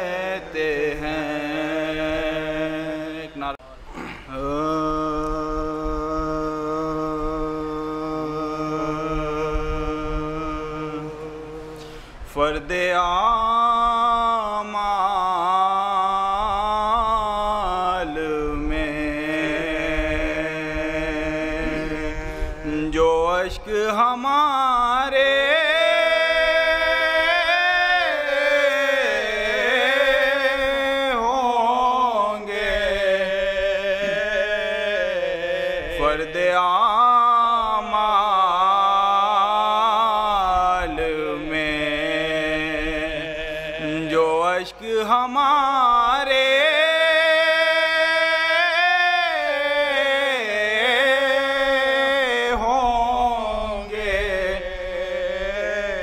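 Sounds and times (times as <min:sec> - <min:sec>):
man chanting unaccompanied: 0:00.0 - 0:56.0.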